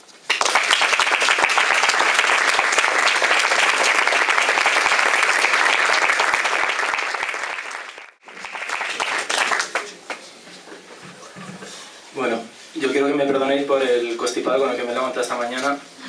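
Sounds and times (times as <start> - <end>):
audience applauding: 0.2 - 10.3.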